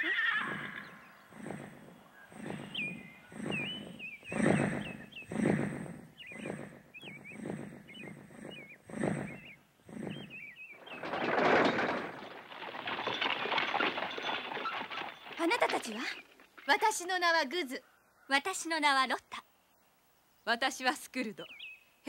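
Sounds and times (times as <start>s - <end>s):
large wings beating: 0.0s - 17.2s
small birds chirping: 0.0s - 22.0s.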